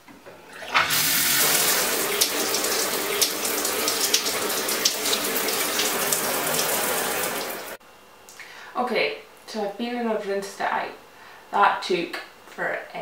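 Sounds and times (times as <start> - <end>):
shower water spray hissing: 0.8 - 7.8.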